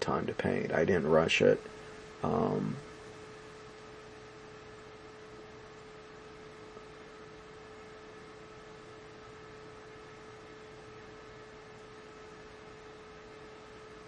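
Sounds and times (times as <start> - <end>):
background hiss: 0.0 - 14.0
electrical hum: 0.0 - 14.0.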